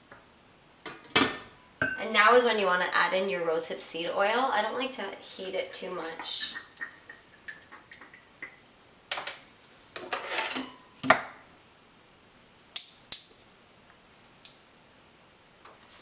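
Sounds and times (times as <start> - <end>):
utensils clattering: 10.1 - 10.8.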